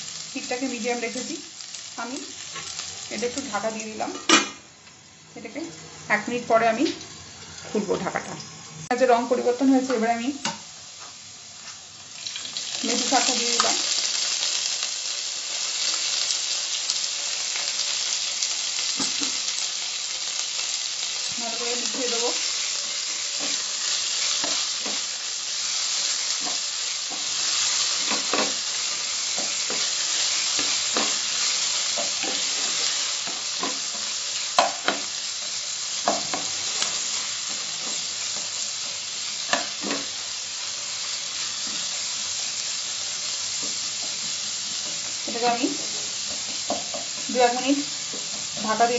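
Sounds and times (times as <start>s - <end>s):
oil sizzling in a pan: 0.0s - 48.9s
spatula knocking and scraping pan: 28.0s - 28.7s, 31.9s - 35.1s, 36.0s - 36.9s, 39.5s - 40.1s, 44.9s - 48.9s.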